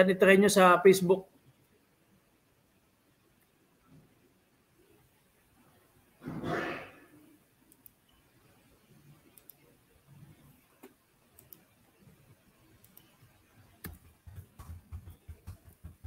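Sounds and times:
faint scattered clicks: 7.7 - 8.2, 9.1 - 11.8, 12.7 - 14.7
soft low thumps: 13.9 - 16.0.

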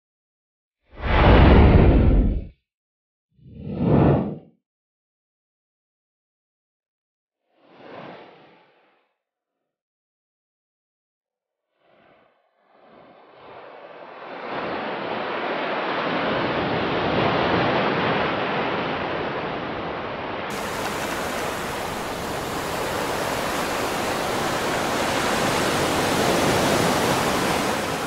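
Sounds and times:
steady rushing noise: 20.5 - 28.0.

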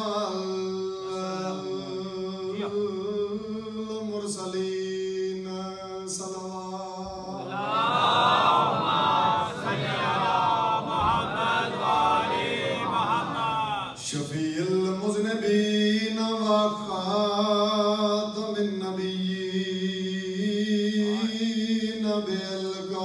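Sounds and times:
man singing unaccompanied: 0.0 - 7.4, 14.0 - 23.0.

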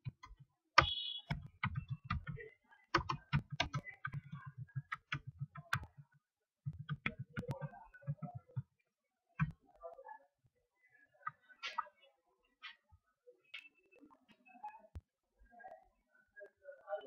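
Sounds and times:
keyboard and mouse clicking: 0.0 - 2.4, 3.0 - 6.0, 6.7 - 8.6.

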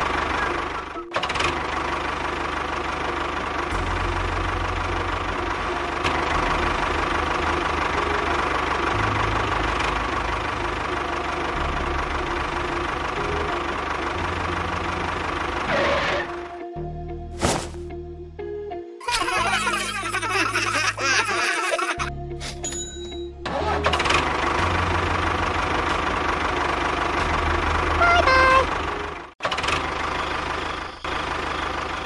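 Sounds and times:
tractor engine chugging: 0.0 - 15.8, 23.6 - 32.0.

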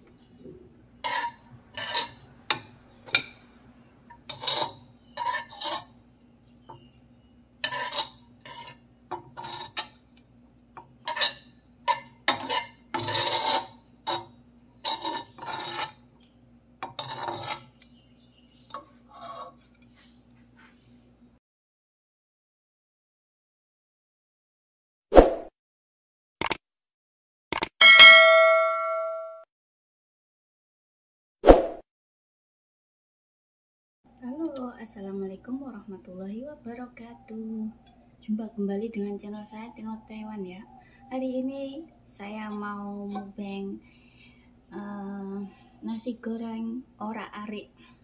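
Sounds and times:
metal spatula scraping a wok: 1.0 - 3.4, 4.2 - 6.0, 7.6 - 10.0, 11.0 - 16.1, 16.8 - 17.8, 18.7 - 20.0.

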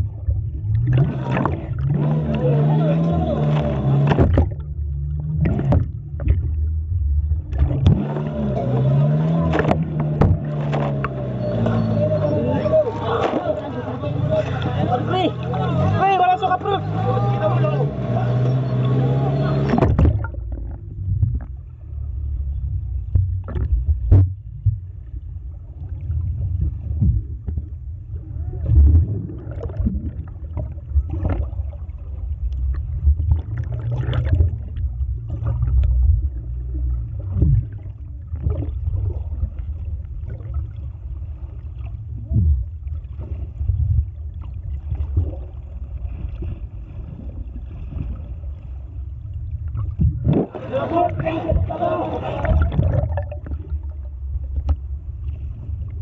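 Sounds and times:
underwater clicks and knocks: 0.0 - 2.5, 3.4 - 11.9, 19.6 - 21.8, 23.0 - 25.1, 26.1 - 27.9, 28.6 - 31.8, 32.4 - 40.7, 49.6 - 50.6, 52.4 - 55.0
bubbling water: 0.0 - 21.9, 25.7 - 48.2, 49.2 - 54.8
muffled underwater rumble: 0.0 - 56.0.

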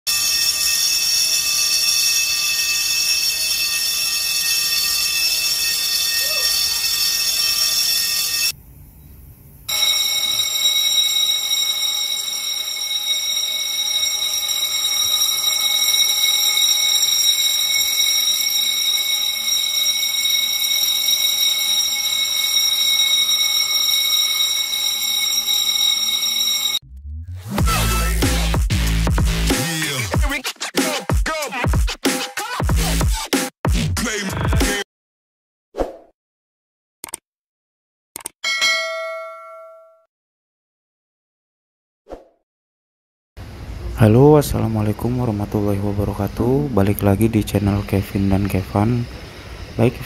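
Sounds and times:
fire alarm bell ringing: 0.1 - 8.6, 9.7 - 26.8, 38.4 - 40.1.

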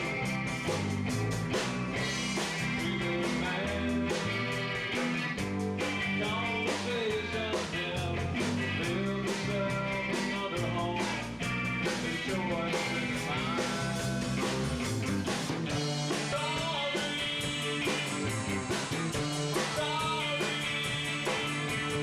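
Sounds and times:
drum kit steady beat: 0.0 - 22.0
electric guitars through amplifiers: 0.0 - 22.0
man singing: 2.5 - 4.7, 6.1 - 14.5, 16.1 - 18.3, 19.2 - 22.0.

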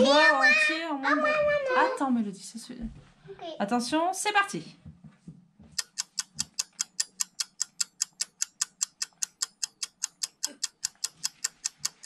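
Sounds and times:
countdown timer ticking: 5.8 - 12.0.

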